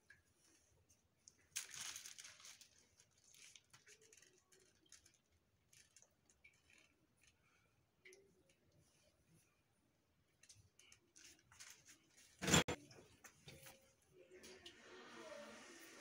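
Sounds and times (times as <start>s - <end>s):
plastic piping bag rustling: 0.4s - 7.7s.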